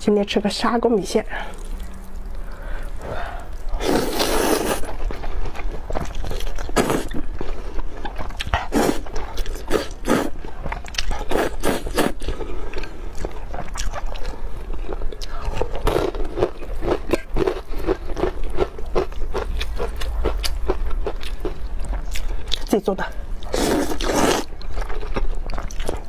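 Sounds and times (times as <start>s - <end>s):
chewing with mouth smacks: 1.5s - 22.8s, 23.4s - 26.0s
noodle slurping: 2.6s - 5.0s.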